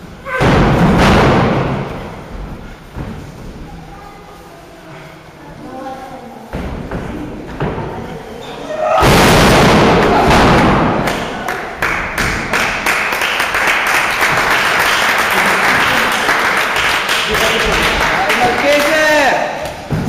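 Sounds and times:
crowd noise: 3.6s - 20.0s
crowd clapping: 10.6s - 19.3s.

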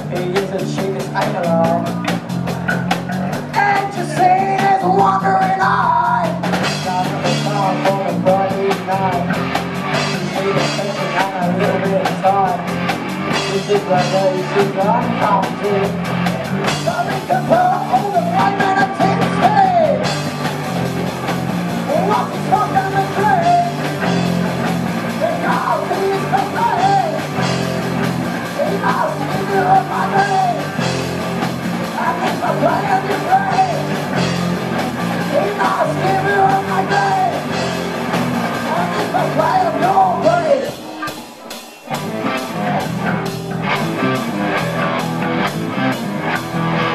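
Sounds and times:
bass guitar: 0.0s - 46.9s
drum kit: 0.0s - 46.9s
electric guitars: 0.0s - 46.9s
person singing: 3.4s - 20.1s, 21.8s - 24.2s, 25.1s - 27.7s, 28.4s - 31.1s, 31.8s - 37.8s, 38.5s - 43.2s.

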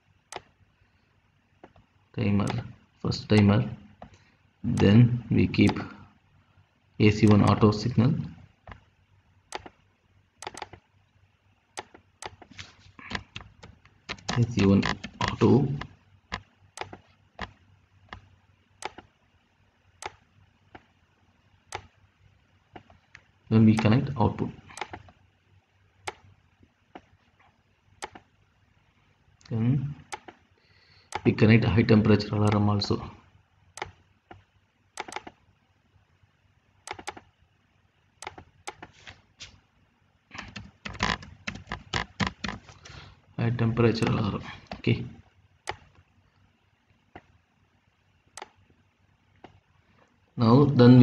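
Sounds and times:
computer mouse clicks: 0.3s - 0.5s, 9.5s - 9.8s, 10.4s - 10.9s, 11.8s - 19.1s, 20.0s - 20.9s, 21.7s - 22.0s, 22.7s - 24.0s, 24.7s - 25.2s, 26.0s - 26.3s, 26.9s - 27.2s, 28.0s - 28.3s, 29.4s - 30.4s, 31.1s - 31.3s, 33.8s - 35.4s, 36.8s - 37.3s, 38.2s - 39.0s, 40.3s - 42.8s, 45.6s - 46.0s, 48.3s - 48.6s, 49.4s - 49.6s
keyboard typing: 9.5s - 9.8s, 10.4s - 10.8s, 11.8s - 19.1s, 20.0s - 20.9s, 24.7s - 25.2s, 28.0s - 28.3s, 30.0s - 30.4s, 33.8s - 35.4s, 36.8s - 37.3s, 38.2s - 39.0s, 40.3s - 42.8s, 45.6s - 46.0s.

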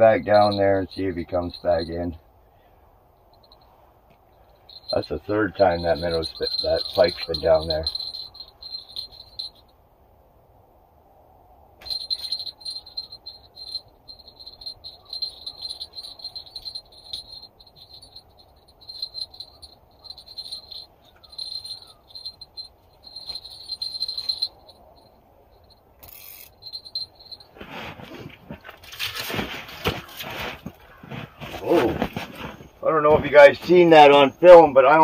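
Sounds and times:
handling noise: 4.5s - 9.6s, 11.8s - 34.3s
fishing reel clicker ratcheting: 26.0s - 26.5s.

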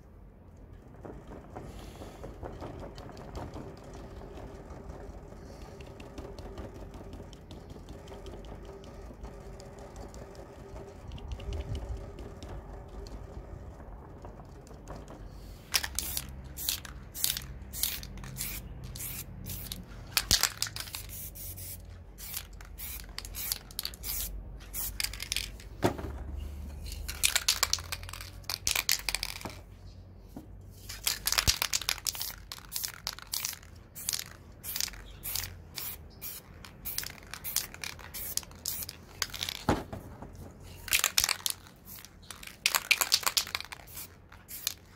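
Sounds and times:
spray paint can hissing: 15.4s - 25.6s, 26.5s - 29.5s, 30.8s - 39.7s, 40.7s - 44.9s.

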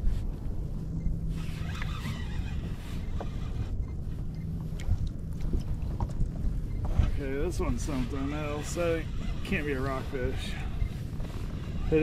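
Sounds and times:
wind buffeting microphone: 0.0s - 12.0s
water washing against kayak hull: 4.6s - 12.0s.

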